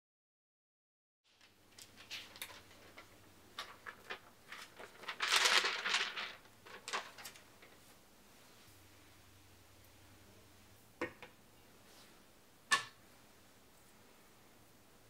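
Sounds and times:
plastic film crinkling: 1.4s - 7.9s.

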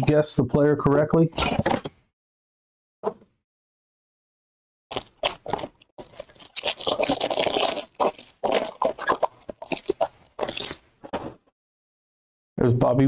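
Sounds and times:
foil wrapper crinkling: 5.2s - 10.8s.

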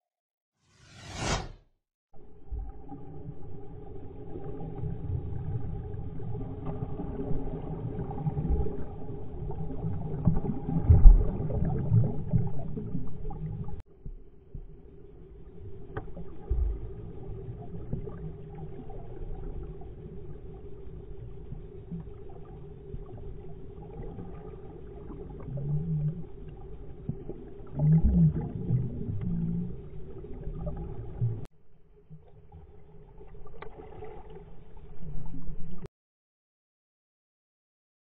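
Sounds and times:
underwater rumble and bubbles: 2.1s - 35.9s.

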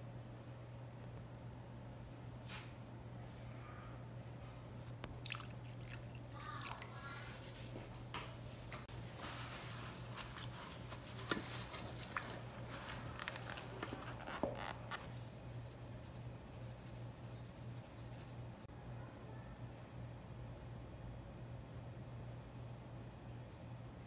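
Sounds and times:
low steady hum: 0.0s - 24.0s
hands squishing wet chicken: 5.1s - 7.6s.

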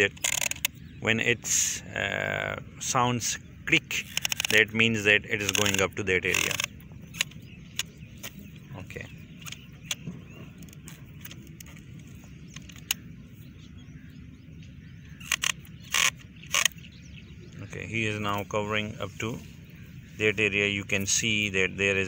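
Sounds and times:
sprinkler rotor plastic clicks: 0.0s - 0.8s, 3.9s - 13.1s, 15.2s - 16.8s.

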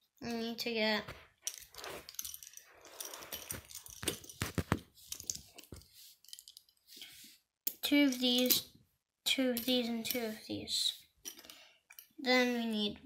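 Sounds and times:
plastic pieces clicking and rattling: 1.4s - 6.7s.

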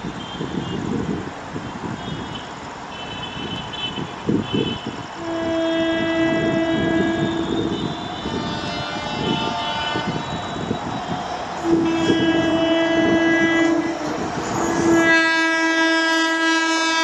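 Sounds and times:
locomotive horn blast: 3.1s - 17.0s
electric locomotive rumbling: 3.6s - 17.0s.

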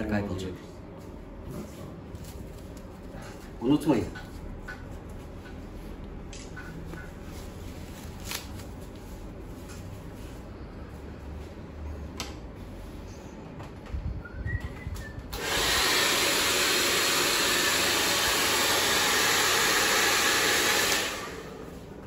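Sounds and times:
hair dryer blowing air: 15.3s - 22.0s.

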